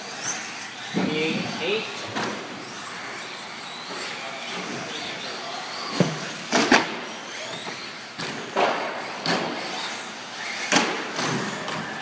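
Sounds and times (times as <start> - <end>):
rc car motors whirring: 0.0 - 12.0
rc cars knocking against boards: 5.8 - 7.1, 7.7 - 12.0.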